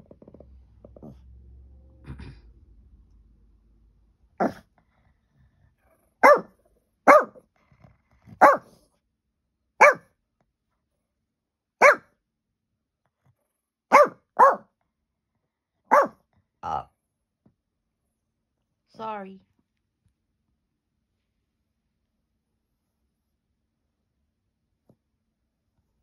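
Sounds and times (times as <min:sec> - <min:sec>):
small dog barking: 0:04.4 - 0:04.7, 0:06.2 - 0:07.5, 0:08.3 - 0:08.8, 0:09.8 - 0:10.1, 0:11.8 - 0:12.1, 0:13.9 - 0:14.7, 0:15.9 - 0:16.8.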